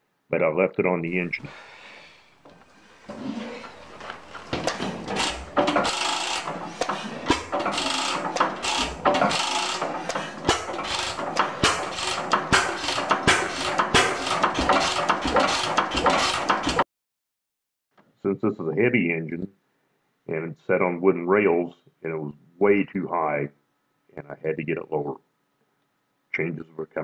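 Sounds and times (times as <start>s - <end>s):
engine clattering and knocking: 3.8s - 16.8s.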